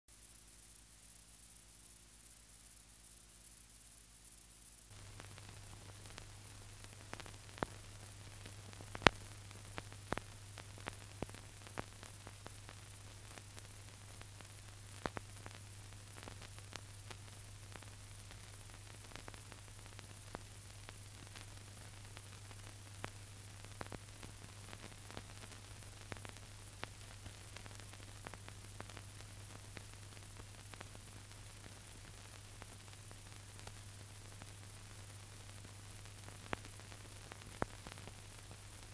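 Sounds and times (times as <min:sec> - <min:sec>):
film soundtrack hiss: 0:00.1 - 0:38.9.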